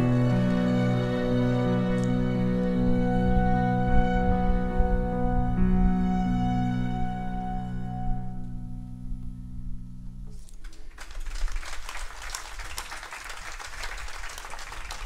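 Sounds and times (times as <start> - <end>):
audience applause: 0.0 - 2.1, 10.6 - 15.0
orchestra holding a chord: 0.0 - 8.9.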